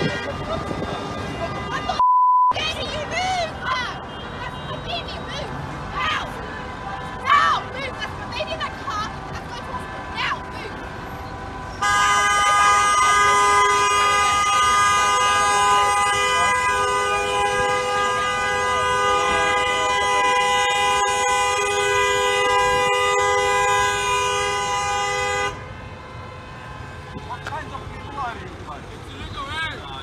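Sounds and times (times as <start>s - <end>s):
vehicle horns honking: 0.0s - 2.0s, 3.4s - 5.4s, 11.8s - 28.5s.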